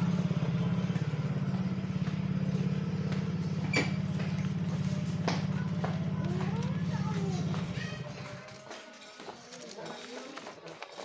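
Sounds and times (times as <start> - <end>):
engine idling: 0.0 - 8.4.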